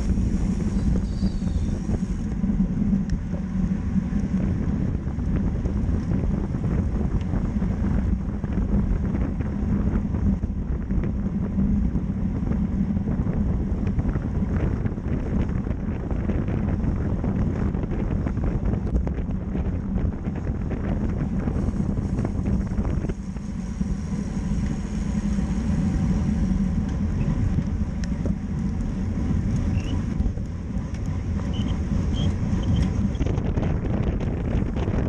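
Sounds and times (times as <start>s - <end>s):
tyre and road noise: 0.0s - 35.0s
wind rushing over microphone: 0.0s - 35.0s.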